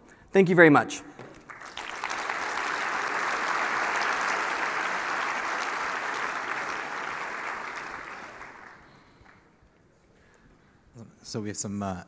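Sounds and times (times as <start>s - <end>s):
audience applauding: 1.3s - 9.6s.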